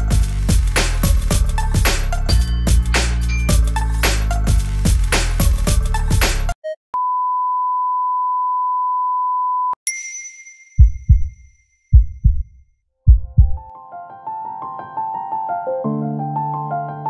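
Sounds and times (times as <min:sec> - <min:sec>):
music: 0:00.0 - 0:06.6, 0:13.7 - 0:17.0
heartbeat thumps: 0:10.8 - 0:13.7.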